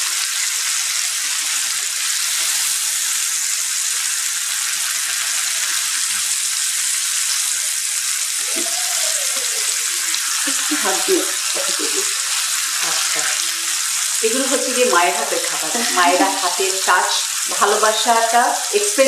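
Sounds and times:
fish sizzling in a frying pan: 0.0 - 19.0.

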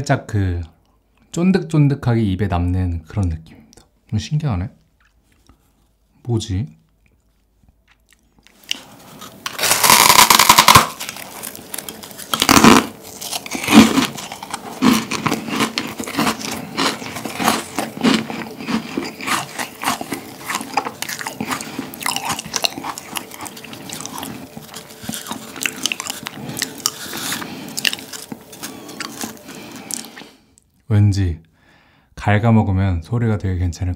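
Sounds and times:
crisp chewing: 6.9 - 30.4
meringue cookie crunching: 6.9 - 30.7.

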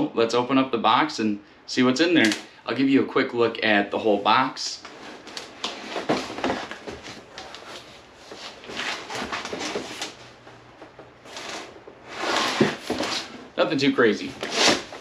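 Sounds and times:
cardboard box scuffing and rubbing: 11.3 - 13.4.

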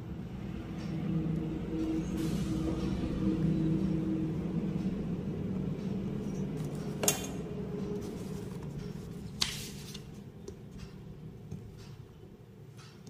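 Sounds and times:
low hum: 0.0 - 12.7.

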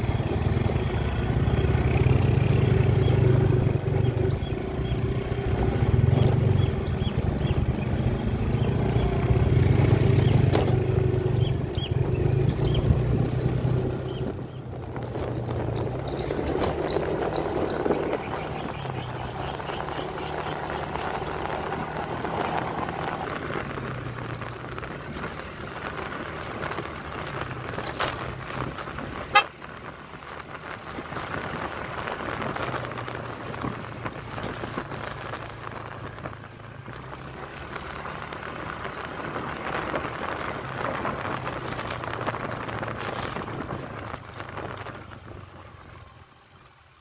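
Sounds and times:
motorcycle engine running: 0.0 - 46.5.

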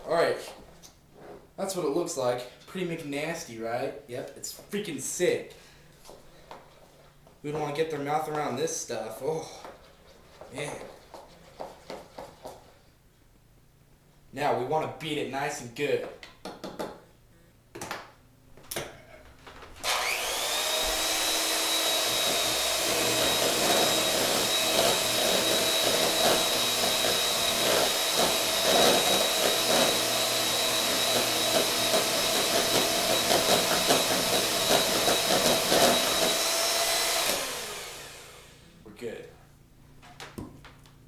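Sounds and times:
electric hand mixer beating batter: 19.8 - 38.7.

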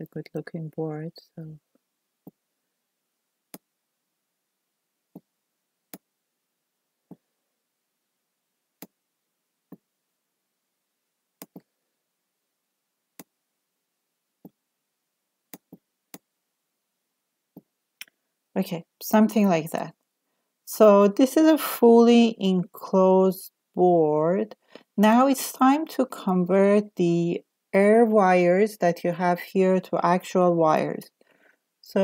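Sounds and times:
computer mouse clicks: 11.4 - 11.7, 15.5 - 16.2.

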